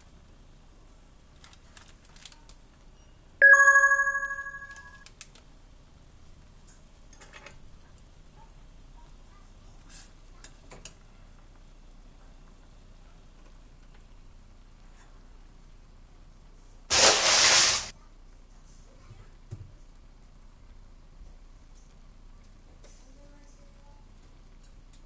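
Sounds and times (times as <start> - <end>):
bell-like ding: 3.4 - 5.0.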